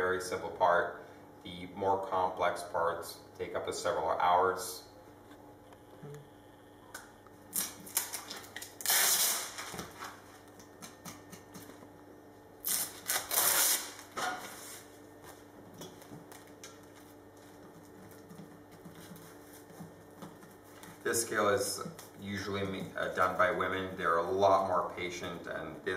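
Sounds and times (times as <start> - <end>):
plastic film crinkling: 7.5 - 10.3, 12.6 - 14.9.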